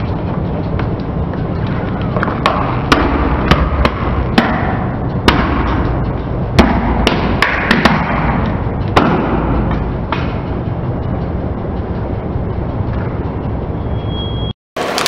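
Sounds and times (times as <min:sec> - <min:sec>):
low car rumble: 0:00.0 - 0:14.0.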